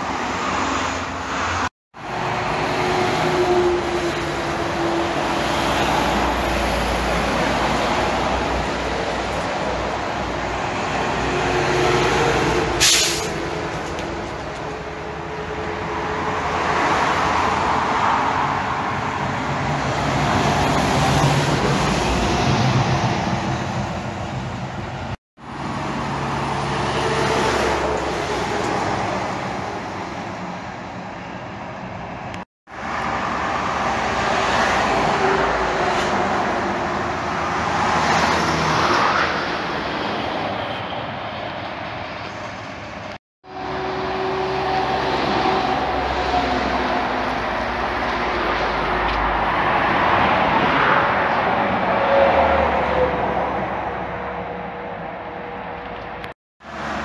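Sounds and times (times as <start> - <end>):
highway traffic passing: 0.0 - 57.0
brief sharp hiss: 12.8 - 13.4.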